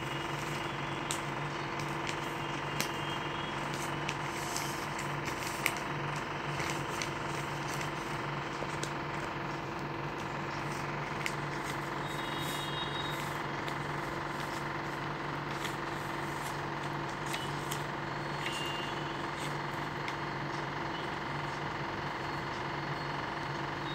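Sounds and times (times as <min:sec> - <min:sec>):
paper being folded: 0:00.0 - 0:21.6
steady mechanical hum: 0:00.0 - 0:23.9.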